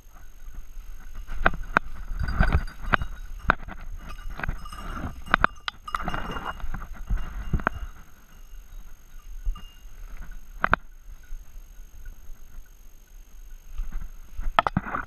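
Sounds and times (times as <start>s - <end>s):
dog's bell ringing: 1.8s - 12.5s.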